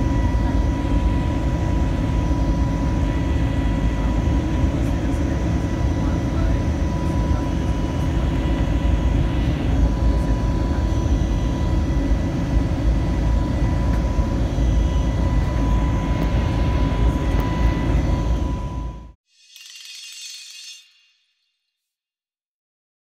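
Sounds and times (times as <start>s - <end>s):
low rumble of jet engines: 0.0s - 19.2s
thin high whine: 14.8s - 21.6s.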